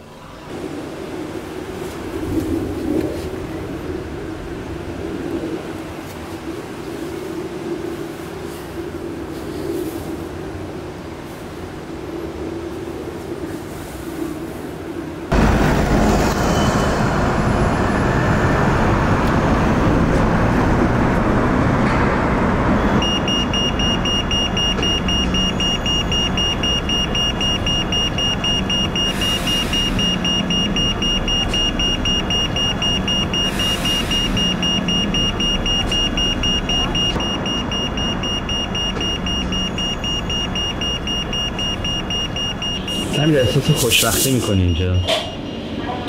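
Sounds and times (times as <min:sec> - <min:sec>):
city street traffic: 0:00.0 - 0:46.0
bus passing close by: 0:15.3 - 0:43.2
crossing signal beeping rapidly: 0:22.8 - 0:45.7.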